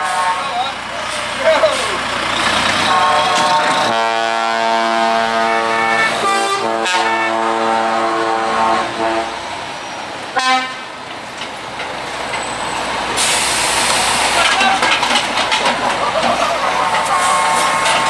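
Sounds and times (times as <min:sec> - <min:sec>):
truck air horn blast: 0:00.0 - 0:01.2, 0:02.8 - 0:09.4, 0:10.3 - 0:10.9, 0:16.6 - 0:18.0.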